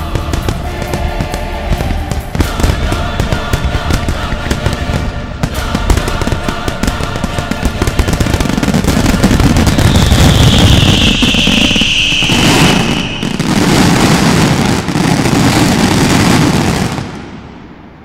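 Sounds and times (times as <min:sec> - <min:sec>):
music playing: 0:00.0 - 0:14.0
firework shells bursting: 0:05.4 - 0:15.1.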